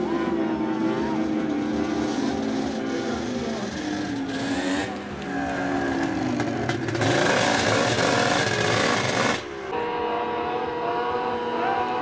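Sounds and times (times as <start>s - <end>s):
snowmobile engine revving: 0.0s - 12.0s.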